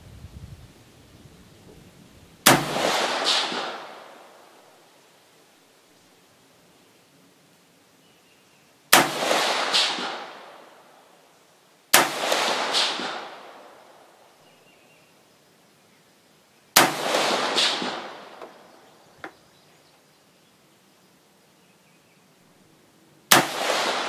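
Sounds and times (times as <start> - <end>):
rifle shots with echo: 2.5 - 4.5, 8.9 - 10.9, 11.9 - 14.0, 16.8 - 18.7, 23.3 - 24.0.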